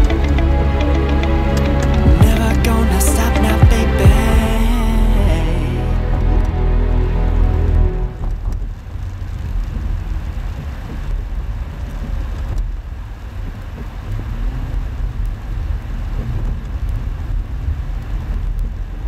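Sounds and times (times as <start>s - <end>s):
light rain ticking on vehicle: 8.5s - 19.0s.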